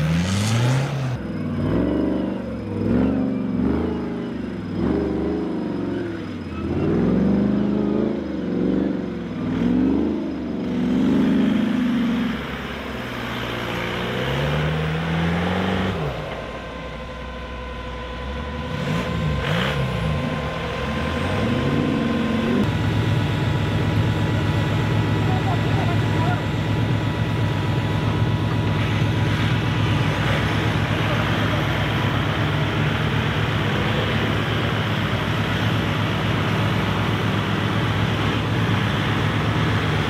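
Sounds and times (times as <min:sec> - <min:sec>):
buggy engine revving hard: 0:00.0 - 0:16.4, 0:18.5 - 0:22.8, 0:24.9 - 0:40.0.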